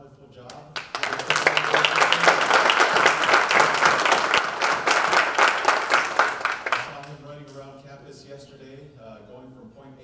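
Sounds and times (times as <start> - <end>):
audience applauding: 0.7 - 7.2.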